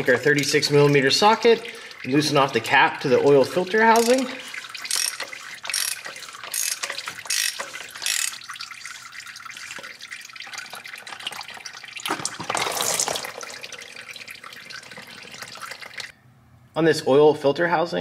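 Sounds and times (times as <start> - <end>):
oil draining into a pan: 0.0 - 16.1
socket ratchet clicking: 4.9 - 8.4.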